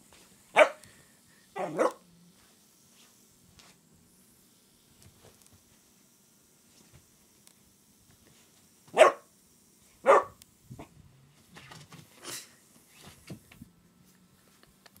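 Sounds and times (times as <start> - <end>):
puppy barking: 0.6 - 0.8, 1.6 - 2.0, 8.9 - 9.3, 10.0 - 10.4.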